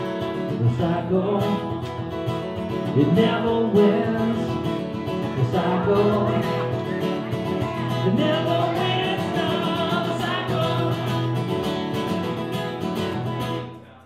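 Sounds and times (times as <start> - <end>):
acoustic guitar: 0.0 - 14.0
person singing: 2.8 - 12.0.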